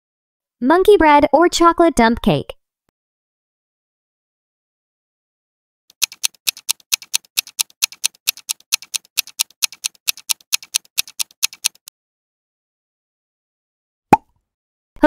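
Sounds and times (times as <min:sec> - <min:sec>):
clock ticking: 0:05.9 - 0:11.9.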